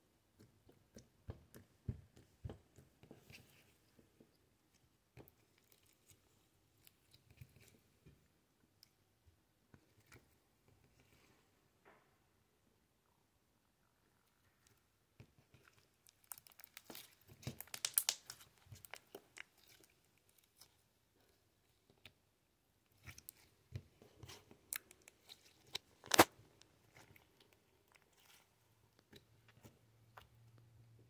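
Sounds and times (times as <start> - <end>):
slime wet clicks and pops: 17.6 - 18.2.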